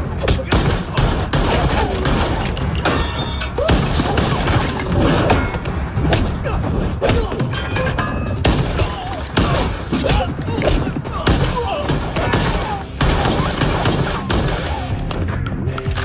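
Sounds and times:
film background score: 0:00.0 - 0:16.0.

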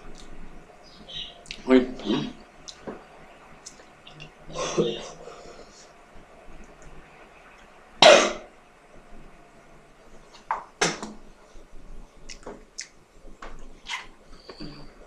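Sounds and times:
mouth clicks: 0:01.0 - 0:01.7, 0:02.6 - 0:02.8, 0:12.2 - 0:13.0.

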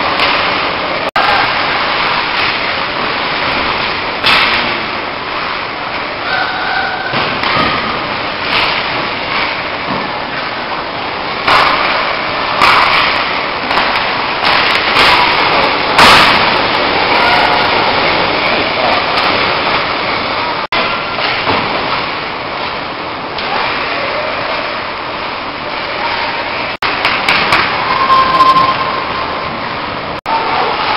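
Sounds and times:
echoing hall noise: 0:00.0 - 0:30.9
hockey sticks and puck cracking: 0:01.4 - 0:04.7, 0:07.2 - 0:10.5, 0:11.4 - 0:19.9, 0:26.8 - 0:27.9.

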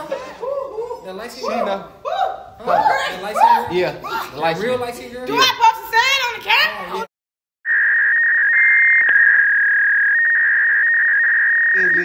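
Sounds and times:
high electronic censor beep: 0:07.7 - 0:12.0.

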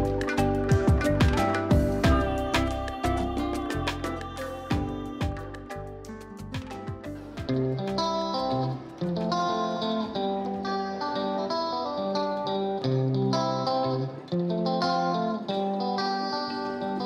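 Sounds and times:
low bass line: 0:00.0 - 0:07.8
plucked guitar melody: 0:00.0 - 0:17.0.

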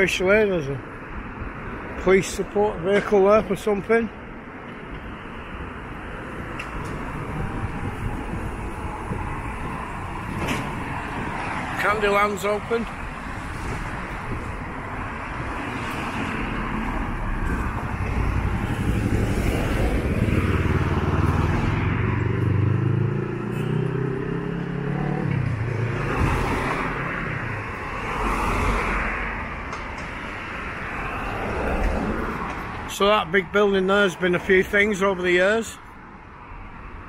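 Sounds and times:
cars passing: 0:00.0 - 0:37.0
vehicle engine passing close: 0:15.8 - 0:29.4.

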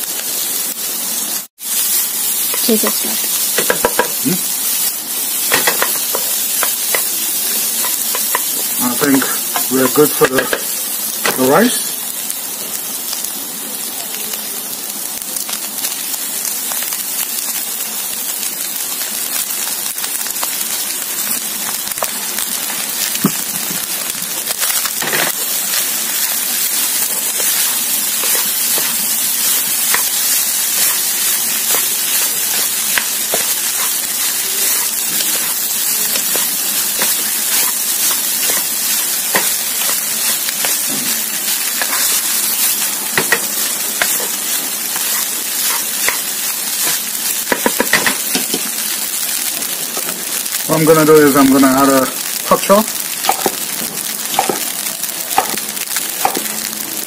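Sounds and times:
food sizzling in a wok: 0:00.0 - 0:57.0
spatula tapping and scraping pan: 0:03.5 - 0:04.2, 0:05.5 - 0:07.1, 0:07.8 - 0:08.6, 0:09.5 - 0:10.7, 0:39.3 - 0:40.0, 0:43.2 - 0:44.4, 0:46.8 - 0:48.6, 0:54.4 - 0:54.6.

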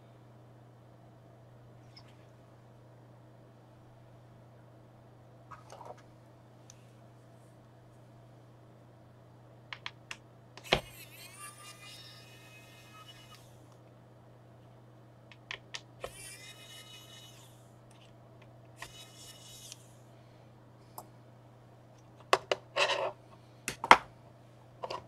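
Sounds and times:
screwdriver squeaks: 0:16.0 - 0:17.5, 0:18.8 - 0:19.8.

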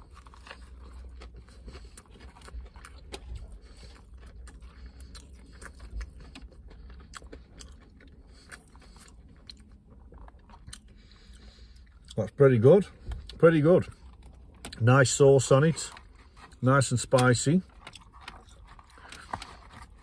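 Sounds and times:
crunching while chewing: 0:00.0 - 0:20.0
steady low rumble: 0:00.0 - 0:20.0.

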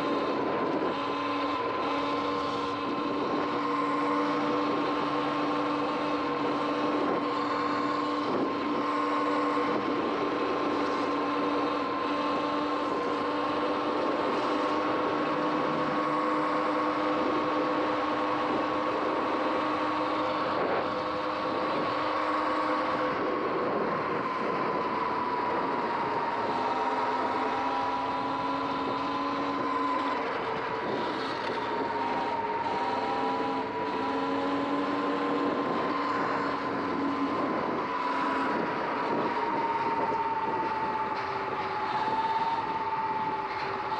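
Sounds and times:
electric motorbike motor whining: 0:00.0 - 0:43.9.

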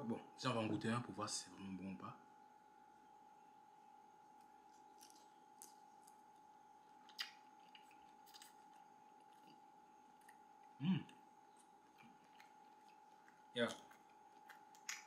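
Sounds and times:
faint steady hum: 0:00.0 - 0:15.0
small clicks and mouth noises: 0:04.3 - 0:15.0
person chewing: 0:04.4 - 0:15.0
short vocal sound: 0:10.8 - 0:11.2.

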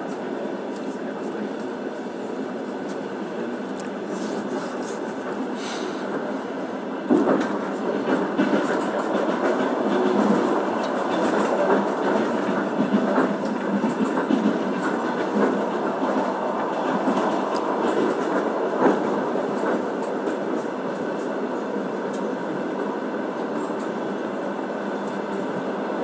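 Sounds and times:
train wheels rumbling on rails: 0:00.0 - 0:26.0
train wheel clacks: 0:07.1 - 0:21.4.

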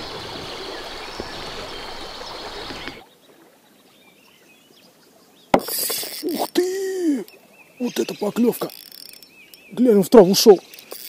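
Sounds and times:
river water rushing: 0:00.0 - 0:03.0
faint bird chirps: 0:00.4 - 0:11.0.

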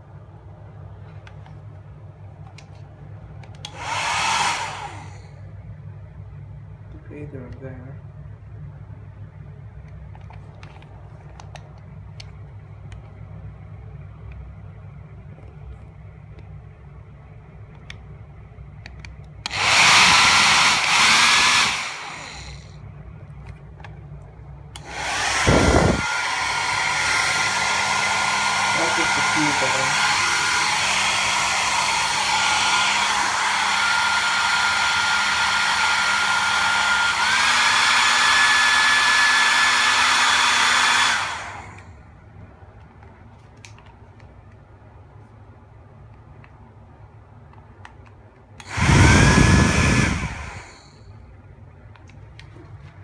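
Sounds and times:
hair dryer running: 0:03.5 - 0:05.5, 0:19.4 - 0:22.8, 0:24.7 - 0:41.9, 0:48.6 - 0:51.0.

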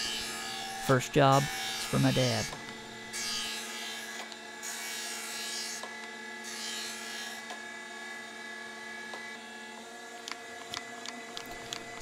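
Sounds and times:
grinder motor hum: 0:00.0 - 0:12.0.

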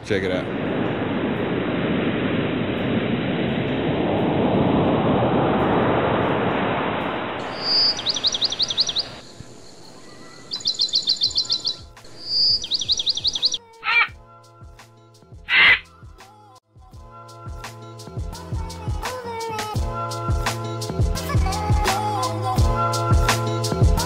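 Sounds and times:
steady rushing noise: 0:00.0 - 0:13.6
bird of prey calling: 0:07.4 - 0:14.2, 0:15.5 - 0:15.9.

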